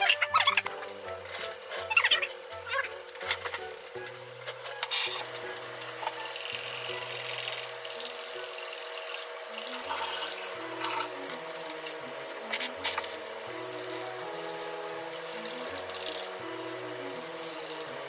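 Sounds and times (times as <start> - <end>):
food hissing on a stovetop: 4.7 - 18.0.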